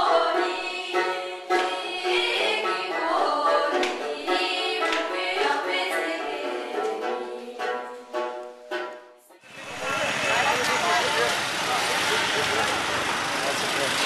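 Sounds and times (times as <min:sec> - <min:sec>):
background music: 0:00.0 - 0:10.1.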